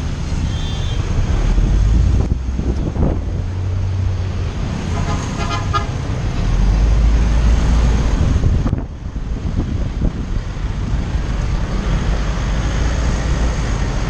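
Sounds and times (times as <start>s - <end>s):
road traffic rumble: 0.0s - 14.0s
vehicle horn toot: 0.5s - 1.0s, 4.9s - 5.9s.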